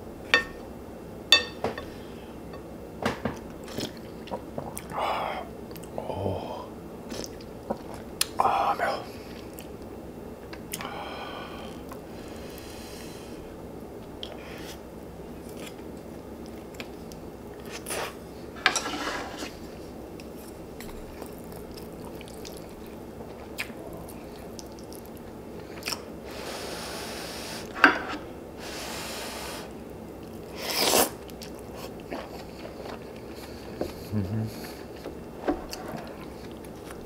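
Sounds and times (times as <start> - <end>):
person chewing and crunching: 20.2 - 26.1, 30.2 - 37.0.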